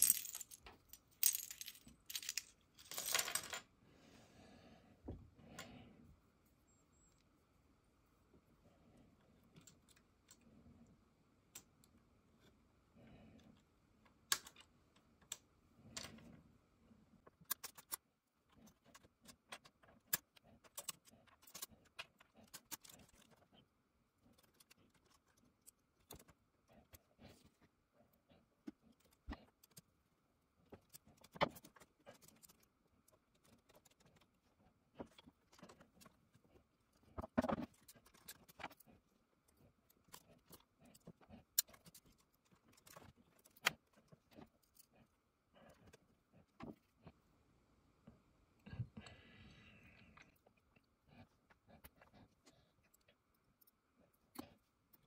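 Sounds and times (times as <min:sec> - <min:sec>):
small mechanical clicks and rattles: 0:17.3 - 0:23.5, 0:24.2 - 0:27.0, 0:37.0 - 0:44.9.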